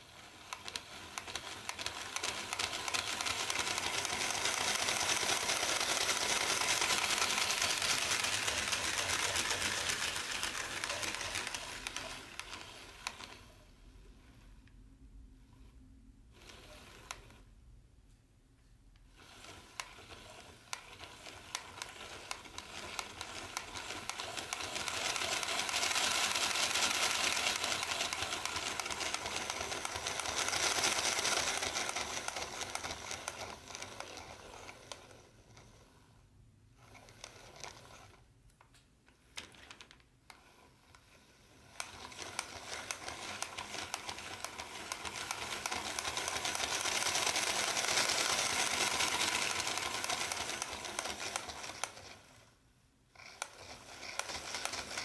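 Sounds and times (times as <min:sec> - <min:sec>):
model train whirring rattle: 0:00.0 - 0:13.5, 0:19.1 - 0:35.8, 0:39.2 - 0:52.5, 0:53.2 - 0:55.0
wheels clicking fast: 0:00.6 - 0:13.2, 0:21.5 - 0:34.0, 0:41.8 - 0:52.0.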